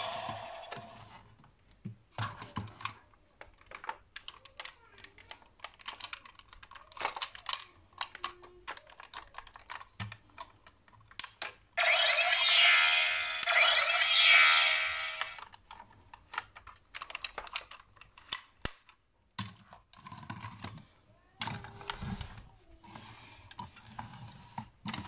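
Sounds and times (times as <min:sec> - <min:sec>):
plastic toy parts clicking: 0:03.4 - 0:15.4, 0:16.3 - 0:20.7
warbling electronic toy tone: 0:11.8 - 0:15.4.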